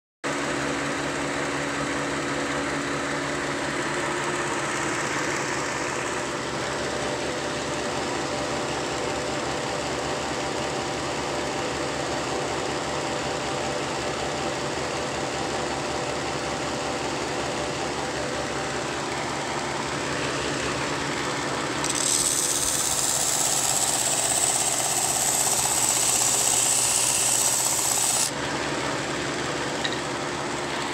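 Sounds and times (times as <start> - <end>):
belt sander humming: 18.0 - 30.9
wood sanding hiss: 21.9 - 28.3.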